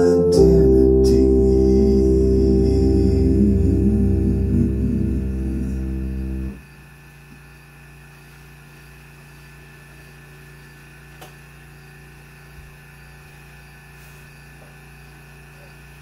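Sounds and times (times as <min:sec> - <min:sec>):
electric keyboard chord: 0:00.0 - 0:06.6
steady low hum: 0:00.0 - 0:16.0.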